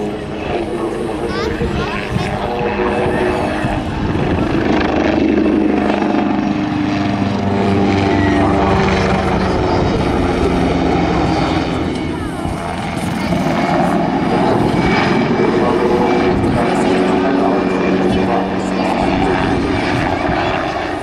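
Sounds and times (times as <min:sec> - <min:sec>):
helicopter engine and rotor blades: 0:00.0 - 0:21.0.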